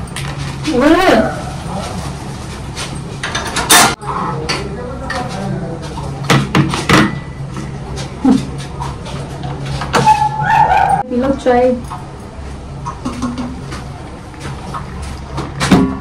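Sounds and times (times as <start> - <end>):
steady low hum: 0.0 - 16.0
voices: 0.6 - 2.3, 7.6 - 13.0
sharp knocks and clatters: 12.9 - 13.8.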